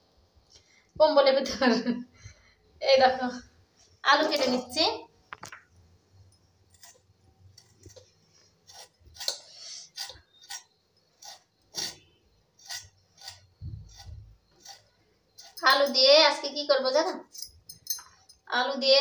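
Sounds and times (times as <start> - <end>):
potato scraping against blade: 6.7 - 16.0.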